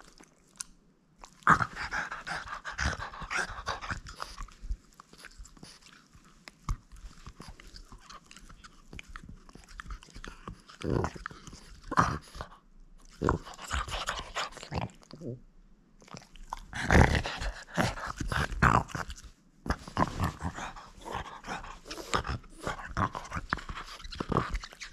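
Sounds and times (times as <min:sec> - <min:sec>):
dog chewing a toy: 0:00.0 - 0:15.4, 0:16.0 - 0:24.9.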